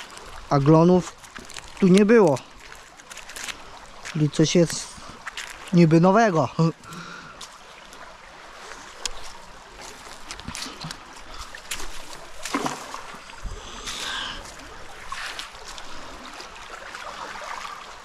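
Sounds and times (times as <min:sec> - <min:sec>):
rope rustling and clicking: 0:00.0 - 0:05.8, 0:08.9 - 0:12.8
stream flowing: 0:00.0 - 0:18.0
magnet splashing into water: 0:11.6 - 0:13.4.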